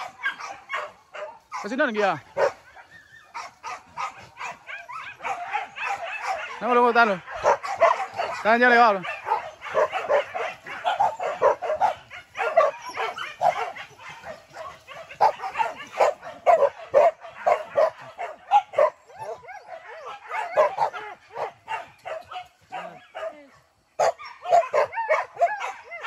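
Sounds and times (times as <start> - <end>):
dogs yelping and barking: 0.0 - 26.0.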